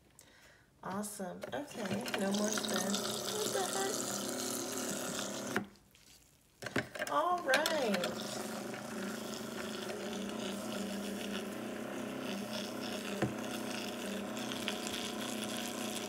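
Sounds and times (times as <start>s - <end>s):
small electric motor humming: 1.8s - 5.7s, 7.8s - 16.0s
wet sponge squishing: 5.7s - 6.6s.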